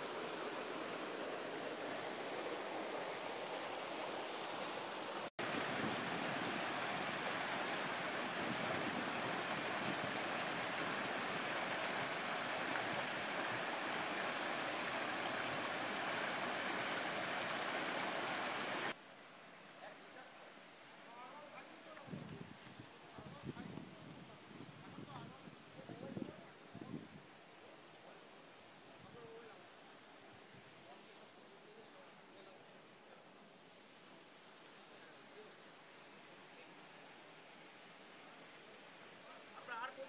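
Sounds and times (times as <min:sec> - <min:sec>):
river water rushing over boulders: 0:00.0 - 0:22.0.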